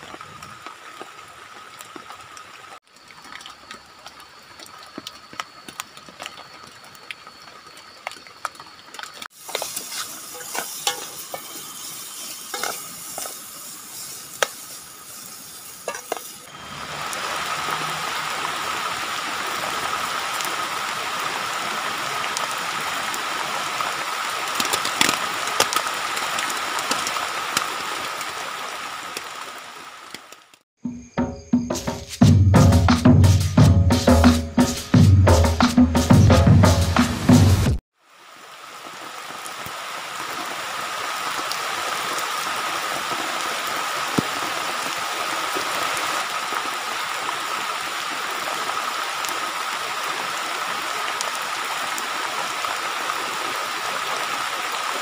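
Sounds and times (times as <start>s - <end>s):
faint rain: 0.0s - 30.7s, 35.4s - 55.0s
heavy rain on plastic sheet: 0.0s - 30.7s, 37.1s - 55.0s
spoon scraping metal pot: 12.5s - 13.3s, 15.9s - 16.3s.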